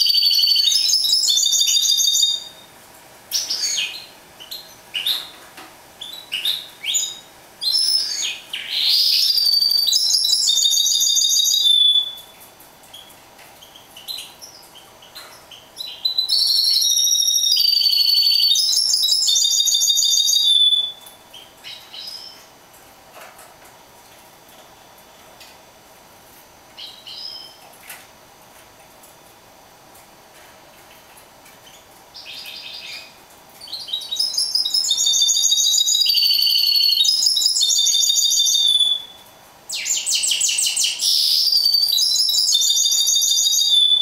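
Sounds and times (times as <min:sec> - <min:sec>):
finch chirps and calls: 0:00.0 - 0:02.6, 0:03.3 - 0:05.4, 0:06.0 - 0:22.5, 0:26.8 - 0:27.6, 0:31.6 - 0:44.0.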